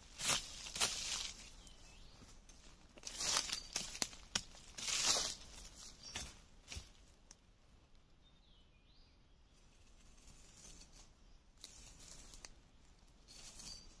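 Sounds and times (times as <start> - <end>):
bird chirp: 1.3 - 2.4, 5.7 - 6.4, 8.2 - 9.9.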